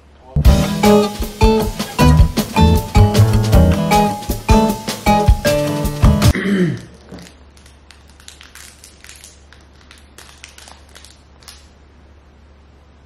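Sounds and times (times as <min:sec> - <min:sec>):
music cue: 0:00.4 - 0:06.3
snack packaging crinkling: 0:06.8 - 0:11.8.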